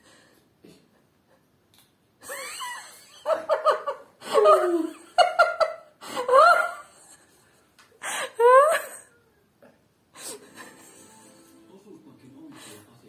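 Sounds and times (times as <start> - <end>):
young man laughing: 2.2 - 7.3.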